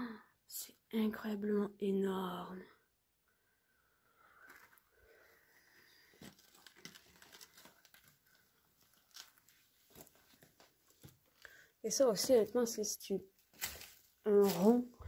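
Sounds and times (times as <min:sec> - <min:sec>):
scattered crackles: 0:06.0 - 0:11.6
footsteps crunching on rubble: 0:08.8 - 0:11.4, 0:13.4 - 0:15.0.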